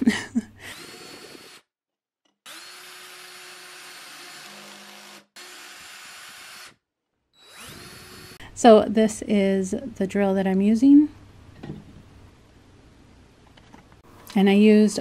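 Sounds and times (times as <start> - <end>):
cordless drill boring into wood: 0.7 - 1.6, 2.4 - 6.8, 7.4 - 8.4.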